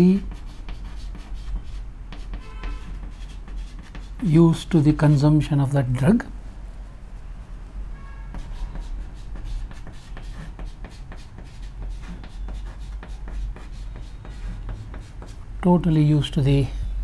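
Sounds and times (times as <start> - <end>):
chalk scratching on a chalkboard: 0.0 - 5.3, 8.3 - 15.4.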